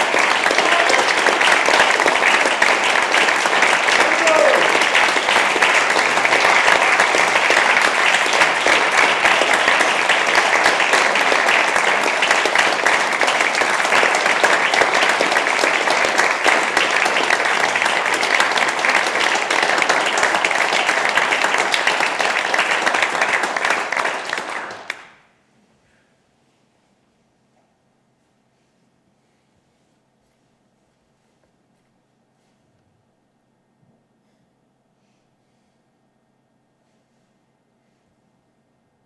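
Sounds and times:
audience applauding: 0.0s - 25.2s.

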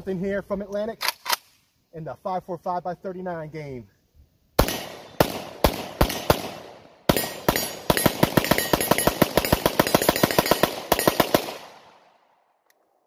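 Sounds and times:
rifle shots with ringing echo: 4.6s - 12.5s.

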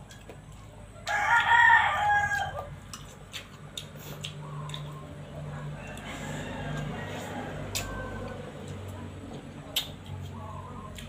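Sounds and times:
rooster crowing: 1.0s - 2.8s, 5.7s - 8.7s.

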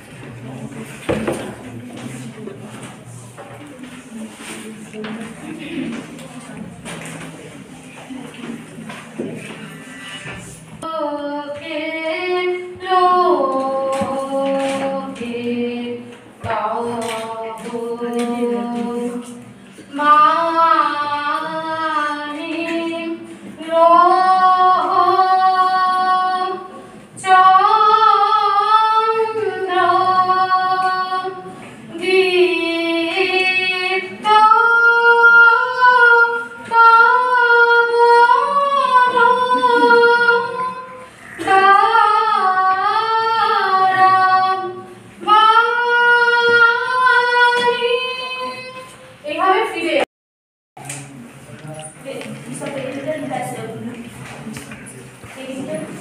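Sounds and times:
high voice singing unaccompanied: 10.8s - 50.0s.

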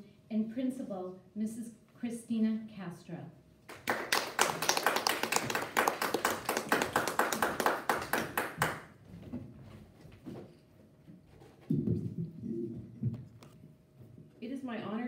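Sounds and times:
small audience applause: 3.7s - 9.0s.

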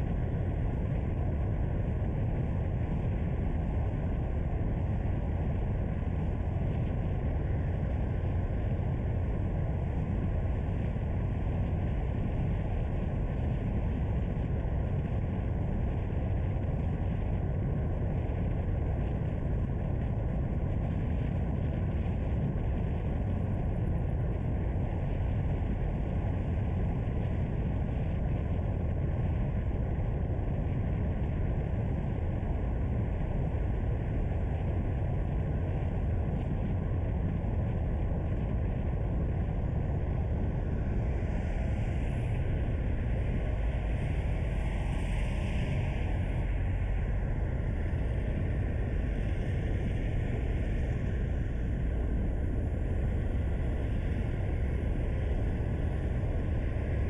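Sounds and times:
car driving with road noise: 40.2s - 57.0s.

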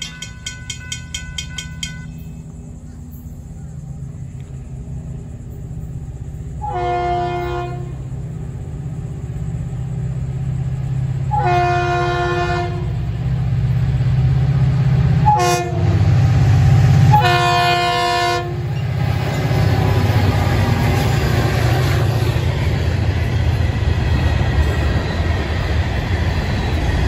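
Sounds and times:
train rumbling: 0.0s - 27.0s
locomotive horn blasts: 6.6s - 8.0s, 11.3s - 13.0s, 15.2s - 16.1s, 17.0s - 18.8s.

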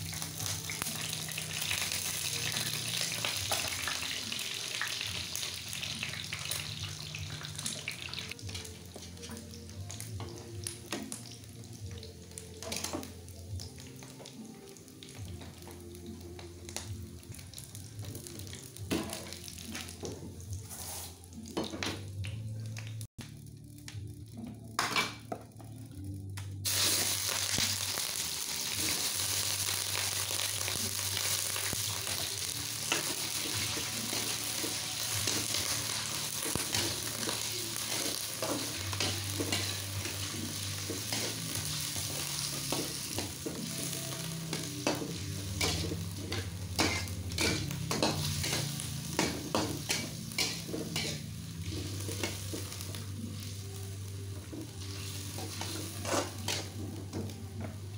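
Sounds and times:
squid sizzling in hot oil: 0.0s - 8.4s, 26.6s - 53.8s, 54.7s - 56.8s
spatula scraping and knocking wok: 32.8s - 43.9s, 44.5s - 53.0s, 54.6s - 57.8s.

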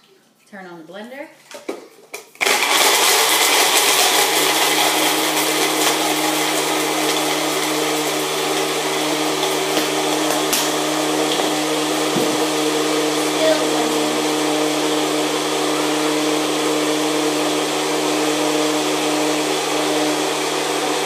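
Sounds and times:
blender motor hum: 2.4s - 21.0s.

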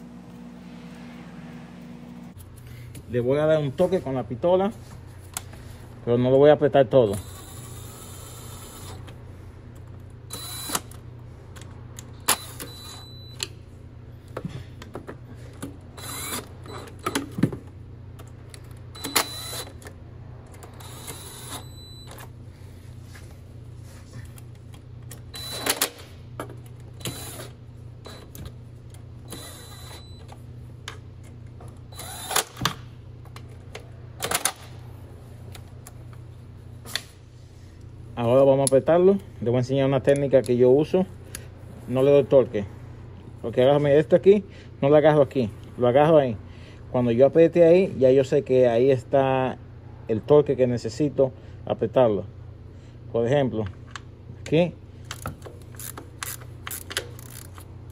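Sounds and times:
steady low hum: 0.0s - 57.9s
power driver bursts: 16.0s - 16.5s, 31.9s - 32.7s.

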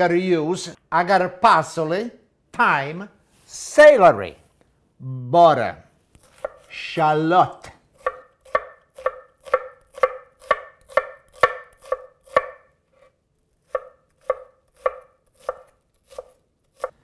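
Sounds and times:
knife chopping on wooden board: 6.3s - 6.7s, 8.0s - 13.1s, 13.7s - 17.0s.

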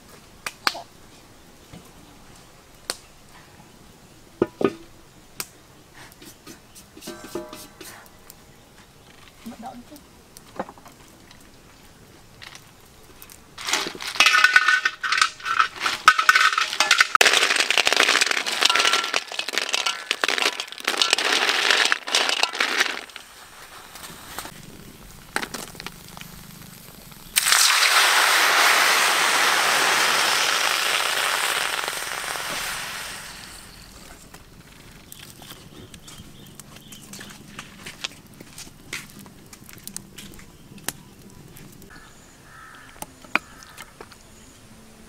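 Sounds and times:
snail shells clattering in metal bowl: 13.6s - 23.3s
snails sizzling in hot wok: 13.6s - 34.1s.

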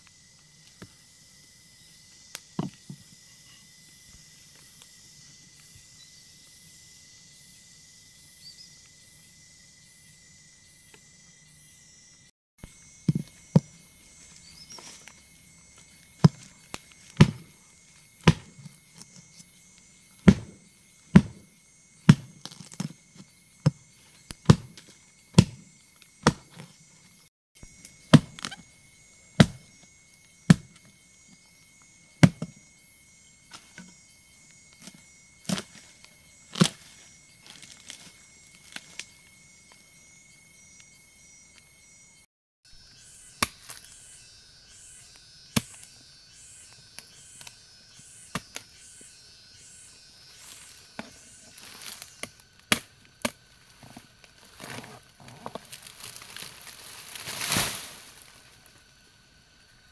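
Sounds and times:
hand tool chopping: 16.2s - 17.5s, 18.2s - 18.7s, 20.2s - 21.4s, 22.0s - 22.9s, 23.6s - 25.6s, 26.2s - 26.7s, 28.1s - 28.6s, 29.4s - 29.7s, 32.2s - 32.5s.

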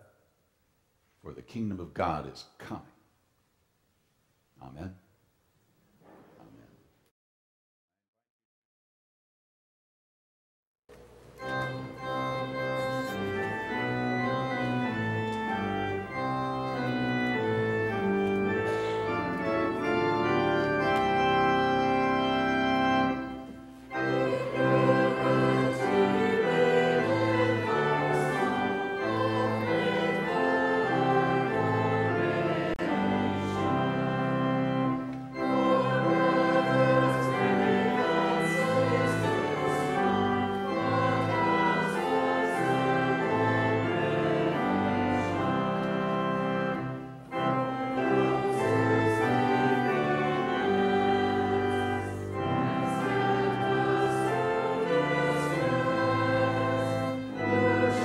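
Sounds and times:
church organ playing hymn: 10.9s - 58.0s
voices singing: 23.9s - 34.0s, 35.3s - 45.9s, 47.7s - 58.0s.

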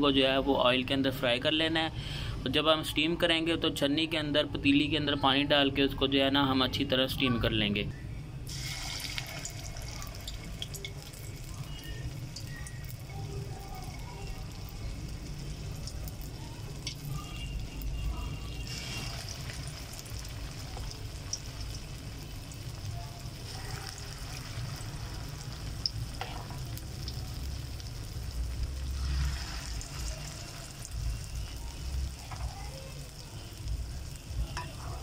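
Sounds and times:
dumplings sizzling in hot oil: 8.5s - 35.0s
metal spoon stirring: 18.6s - 21.4s.

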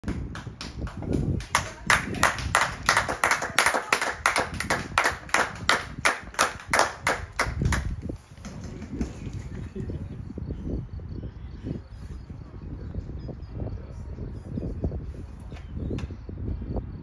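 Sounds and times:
hands clapping: 0.0s - 9.5s.

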